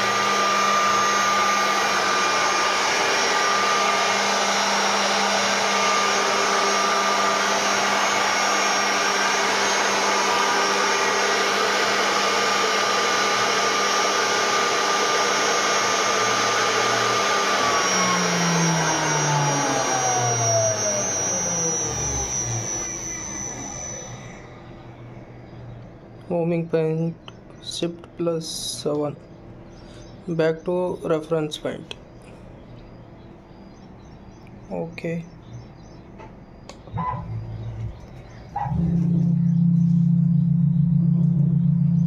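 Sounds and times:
spindle spinning down: 0:00.0 - 0:25.2
router spindle whine: 0:00.0 - 0:31.2, 0:32.8 - 0:42.0.

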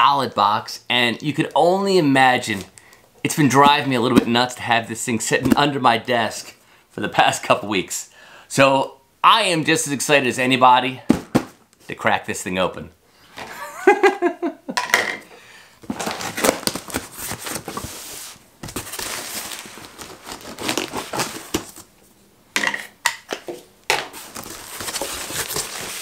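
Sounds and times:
packing tape being cut: 0:19.9 - 0:21.6.

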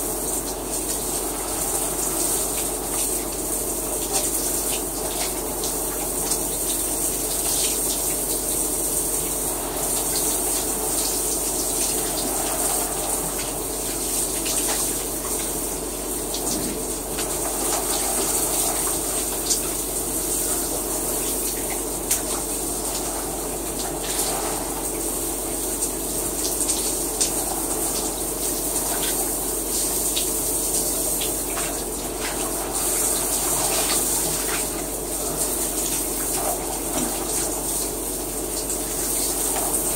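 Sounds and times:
shower water spraying: 0:00.0 - 0:39.9.

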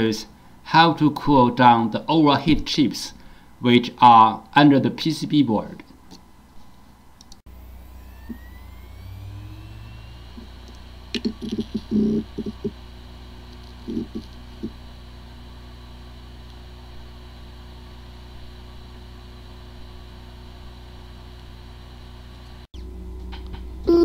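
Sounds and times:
hard drive humming: 0:07.3 - 0:24.0.

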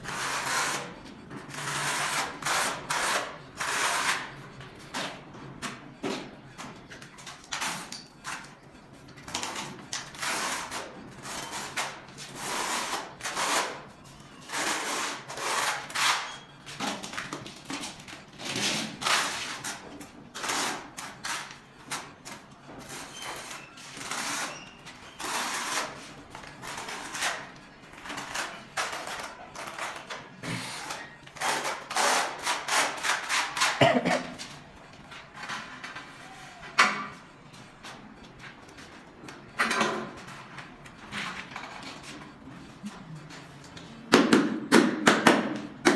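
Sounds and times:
trowel scraping tile adhesive: 0:01.5 - 0:04.3, 0:14.4 - 0:16.5, 0:22.2 - 0:27.5.

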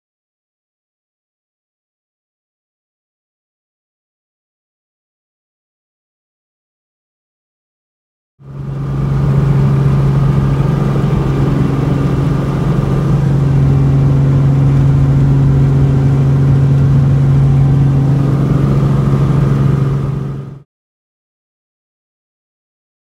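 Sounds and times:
propeller plane engine drone: 0:08.4 - 0:20.7.

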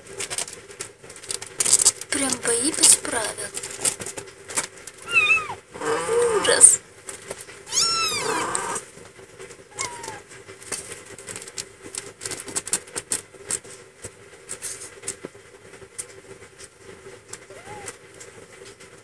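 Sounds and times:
kittens squealing: 0:05.0 - 0:06.8, 0:07.7 - 0:08.8, 0:09.7 - 0:10.3, 0:17.5 - 0:18.0.

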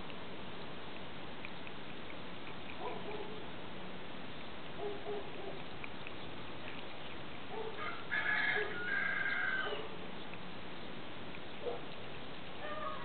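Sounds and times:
cat lapping water: 0:00.8 - 0:07.8
rooster crowing: 0:07.8 - 0:09.9.

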